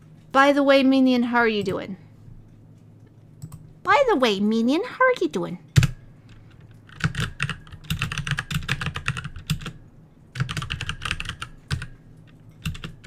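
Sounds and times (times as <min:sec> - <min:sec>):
computer keyboard typing: 0:03.4 - 0:03.6, 0:05.8 - 0:13.0.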